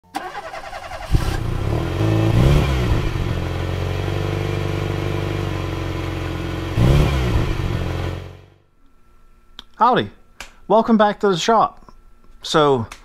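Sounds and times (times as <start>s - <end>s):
engine starting revving and idling: 0.2s - 8.5s.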